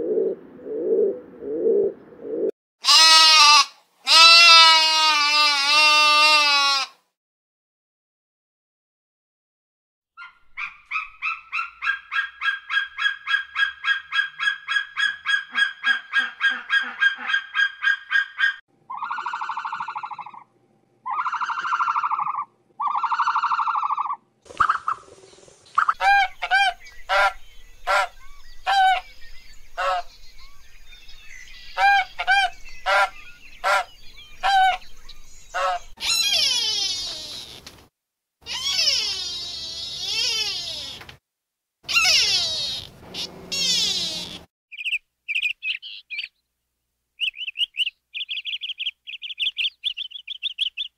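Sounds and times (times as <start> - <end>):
animal calls: 10.2 - 25.1, 25.8 - 29.2, 29.8 - 30.2, 31.7 - 37.7, 38.4 - 41.0, 41.9 - 44.5.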